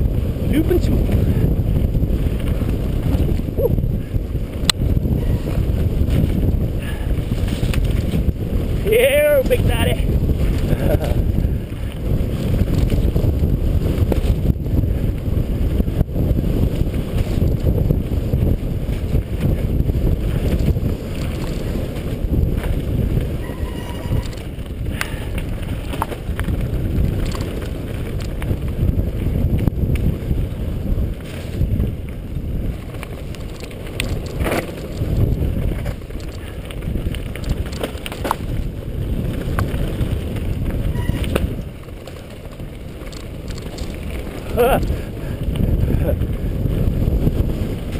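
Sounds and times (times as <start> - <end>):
bike rattling over stones: 0.0 - 47.9
tyres rumbling on gravel: 0.0 - 47.9
wind buffeting microphone: 0.0 - 47.9.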